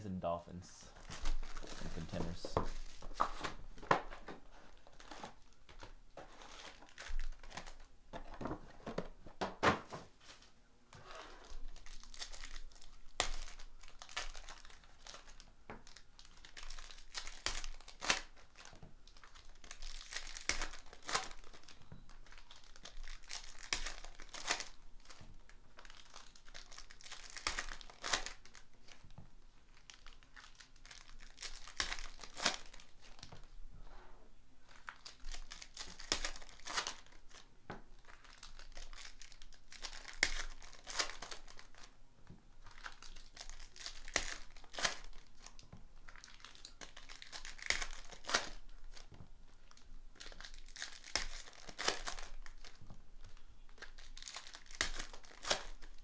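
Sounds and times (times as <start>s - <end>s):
foil wrappers crinkling and tearing: 1.0s - 9.0s, 11.3s - 29.1s, 29.7s - 33.4s, 34.6s - 42.0s, 42.6s - 56.0s.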